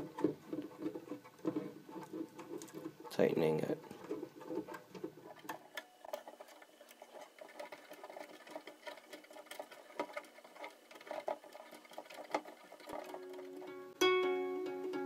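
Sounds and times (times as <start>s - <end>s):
ukulele tuner clicking: 12.9s - 15.0s.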